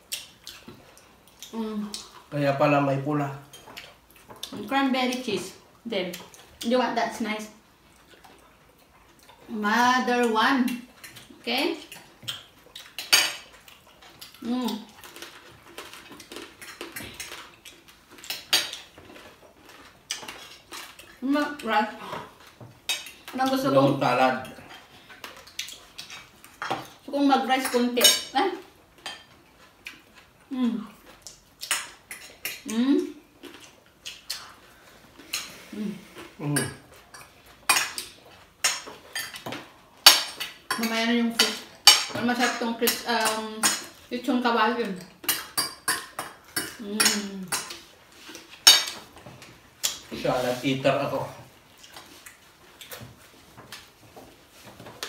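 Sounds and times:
chewing and lip sounds: 0:00.0 - 0:02.3, 0:03.4 - 0:06.7, 0:07.5 - 0:27.8, 0:28.6 - 0:44.1, 0:51.4 - 0:55.0
person humming while eating: 0:46.8 - 0:47.6
dishes and cutlery clinking: 0:48.6 - 0:49.1.

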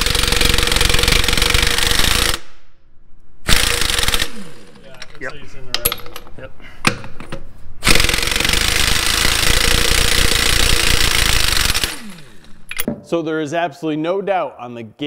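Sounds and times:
air impact wrench hammering: 0:00.0 - 0:02.5, 0:03.4 - 0:04.8, 0:07.8 - 0:12.9.

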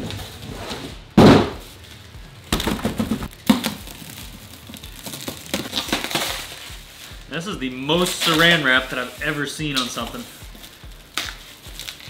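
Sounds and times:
plastic wrap crinkling: 0:01.6 - 0:12.0
tire bumping down: 0:02.5 - 0:03.7.

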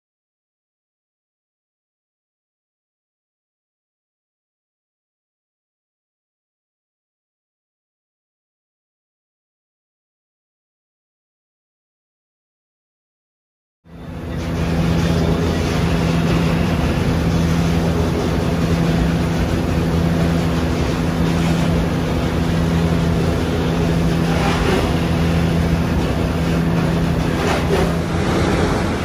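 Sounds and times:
diesel engine and hydraulics droning: 0:13.9 - 0:29.0.

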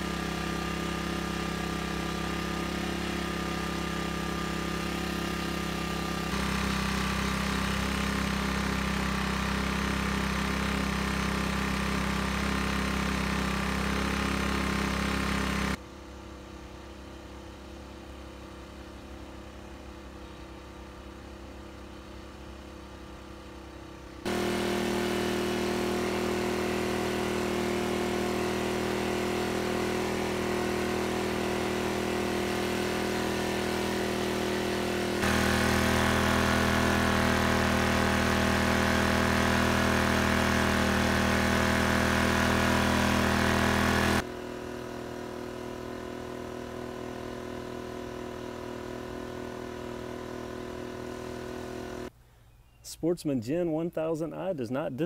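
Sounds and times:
generator humming: 0:00.0 - 0:52.3.

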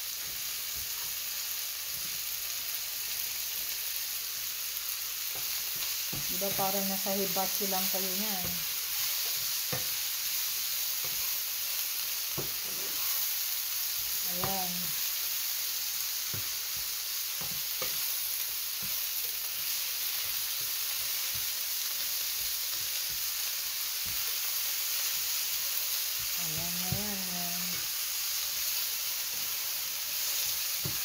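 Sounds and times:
vegetables sizzling in frying pan: 0:00.0 - 0:31.0
spatula scraping pan: 0:05.3 - 0:13.4.

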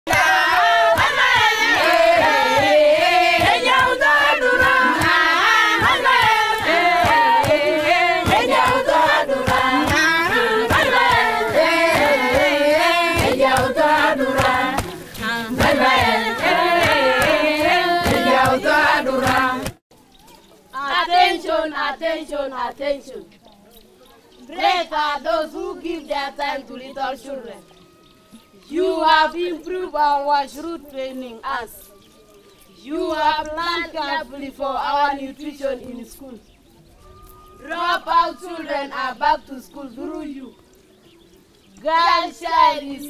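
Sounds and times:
group of voices singing: 0:00.1 - 0:19.8, 0:20.8 - 0:23.3, 0:24.5 - 0:27.8, 0:28.6 - 0:31.9, 0:32.8 - 0:36.4, 0:37.2 - 0:40.7, 0:41.8 - 0:43.0
hand claps: 0:00.1 - 0:19.8.

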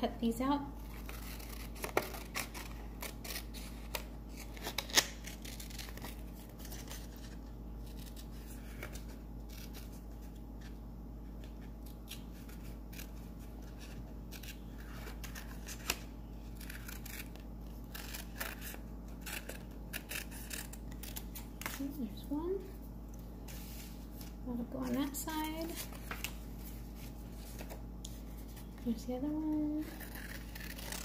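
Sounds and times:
scissors snipping paper: 0:01.0 - 0:10.0, 0:11.9 - 0:21.9, 0:29.3 - 0:31.0.

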